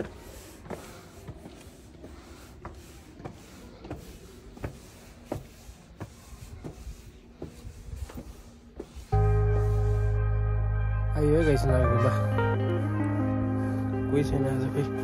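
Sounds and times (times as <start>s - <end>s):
footsteps walking: 0.0s - 10.0s.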